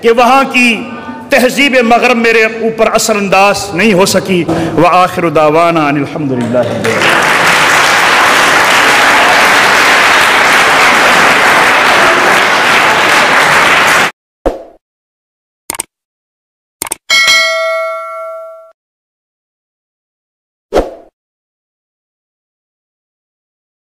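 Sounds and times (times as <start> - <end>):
audience applauding: 6.4 - 14.2
short clicks: 15.7 - 15.9, 16.8 - 17.1
bell-like ding: 17.1 - 18.8.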